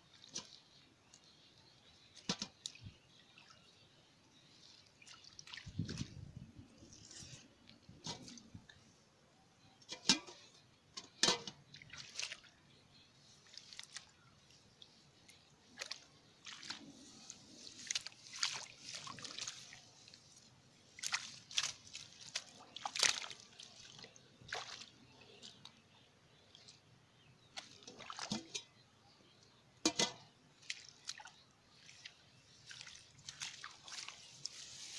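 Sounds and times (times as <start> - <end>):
hands splashing in muddy water: 4.5 - 6.3, 11.2 - 12.6, 13.4 - 14.6, 15.6 - 25.8, 27.5 - 28.7, 29.8 - 34.9
sharp water slaps: 11.2 - 12.5, 17.8 - 19.7, 21.0 - 24.9, 27.6 - 28.6, 29.8 - 34.2.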